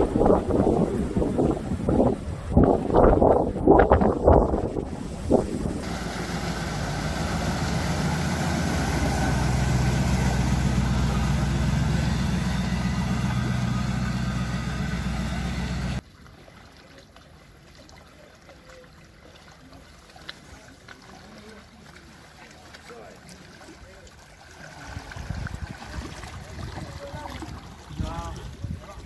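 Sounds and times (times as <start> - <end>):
water rushing and splashing: 0.0 - 29.0
vehicle engine running: 5.8 - 16.0.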